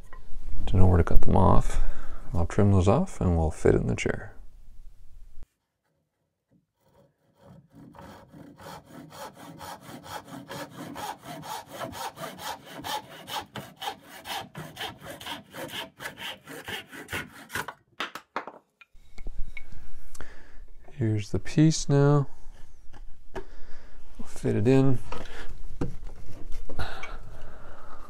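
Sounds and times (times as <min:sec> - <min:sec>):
hand saw cutting wood: 0:06.5 - 0:17.8.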